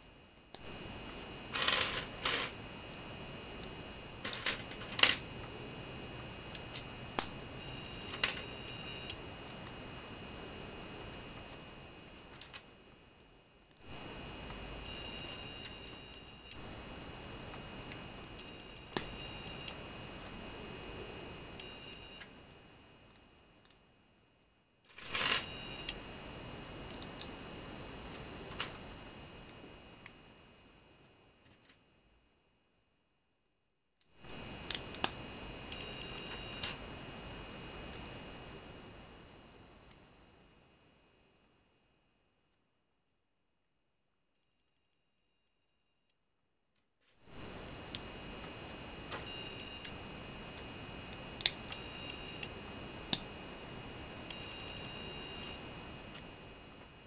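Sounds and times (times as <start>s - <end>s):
faint high whine: 0.0s - 33.0s, 34.0s - 42.5s, 47.0s - 57.0s
plastic bricks clattering and clicking: 1.6s - 2.5s.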